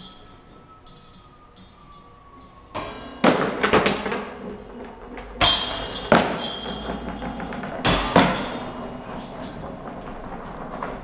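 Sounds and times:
discs clanking into basket chains: 0:00.0 - 0:01.9, 0:02.8 - 0:09.8.

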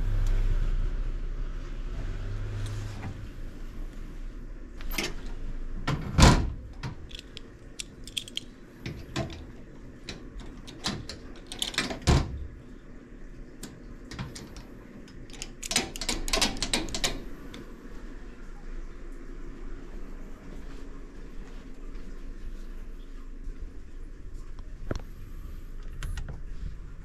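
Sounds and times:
padlock clicking and rattling: 0:06.9 - 0:09.4, 0:10.0 - 0:12.1, 0:14.1 - 0:17.3.

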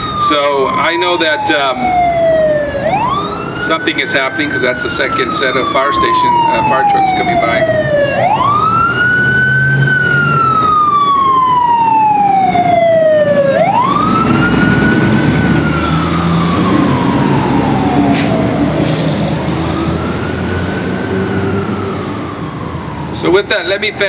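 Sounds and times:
fire truck siren wailing: 0:00.0 - 0:24.0
truck engine rumble: 0:00.0 - 0:24.0.

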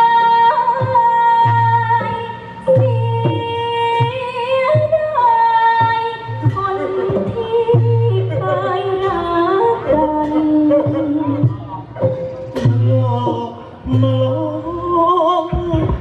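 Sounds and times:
low bass notes: 0:07.7 - 0:16.0.

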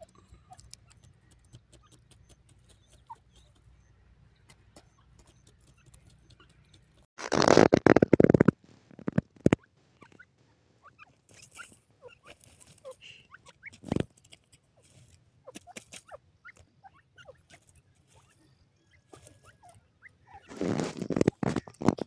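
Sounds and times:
birds giving squeaky calls: 0:00.0 - 0:08.4, 0:09.1 - 0:14.2, 0:14.8 - 0:22.0
sharp clicks: 0:00.6 - 0:03.7, 0:04.5 - 0:09.6.

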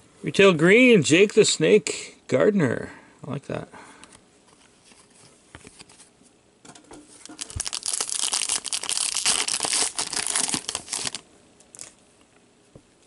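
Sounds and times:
foil wrapper tearing and crinkling: 0:07.1 - 0:12.0.

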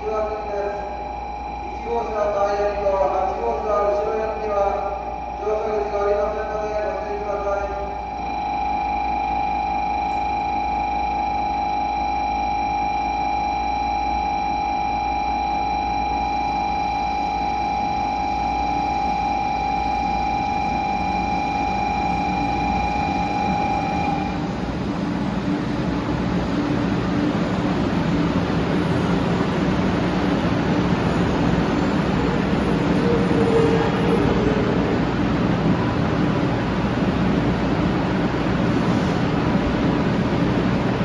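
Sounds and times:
high electronic tone: 0:00.0 - 0:24.7
train pulling in: 0:15.9 - 0:41.0.

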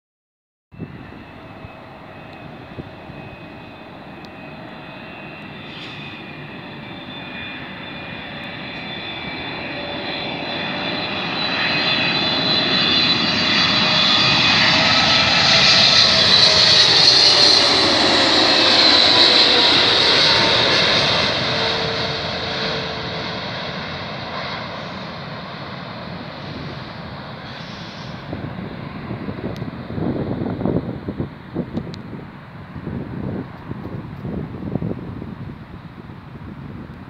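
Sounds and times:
jet airliner approaching: 0:00.7 - 0:37.0.

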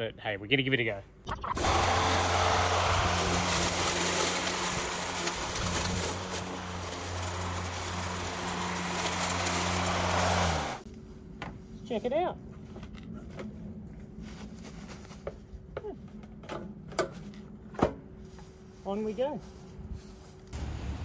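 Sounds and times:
electric mower cutting grass: 0:01.6 - 0:10.8.

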